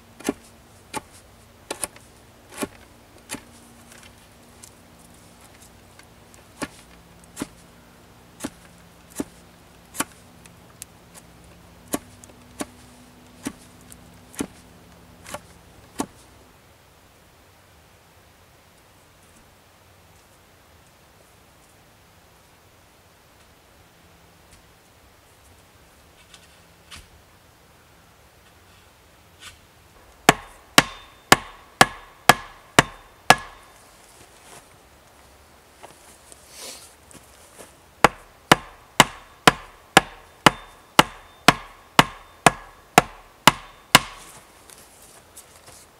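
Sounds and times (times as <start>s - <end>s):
hatchet striking wooden stick: 30.3s - 33.7s, 38.0s - 44.4s.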